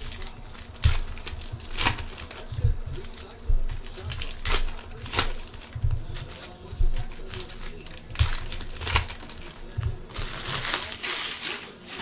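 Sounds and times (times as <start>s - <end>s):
foil wrapper crinkling: 0.0s - 12.0s
low handling thuds: 0.4s - 7.4s.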